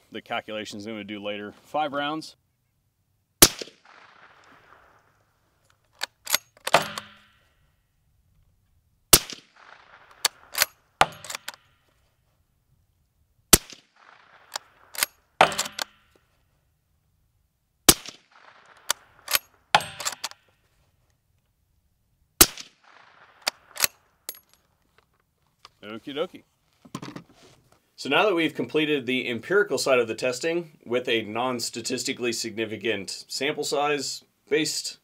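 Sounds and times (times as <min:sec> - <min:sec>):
suppressed rifle shots: 0:03.4 - 0:07.6, 0:09.1 - 0:11.9, 0:13.5 - 0:16.2, 0:17.9 - 0:20.4, 0:22.4 - 0:24.4
rifle bolt clicking: 0:05.8 - 0:07.3, 0:09.3 - 0:11.7, 0:13.6 - 0:16.2, 0:18.0 - 0:20.4, 0:22.5 - 0:24.6.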